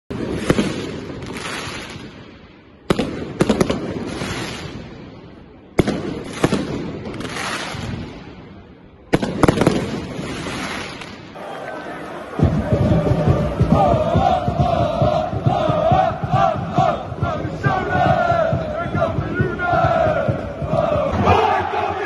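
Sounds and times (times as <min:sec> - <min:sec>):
fireworks bangs: 0:00.1 - 0:11.4
fireworks crackling: 0:00.1 - 0:11.6.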